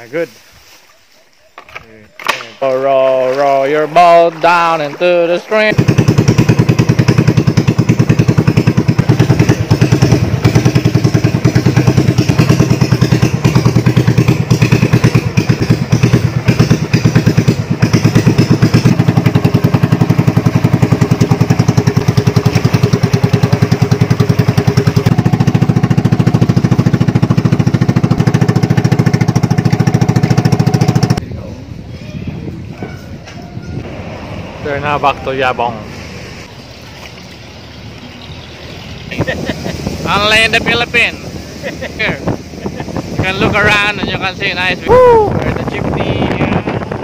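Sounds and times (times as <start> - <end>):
small boat engine running: 4.5 - 31.2.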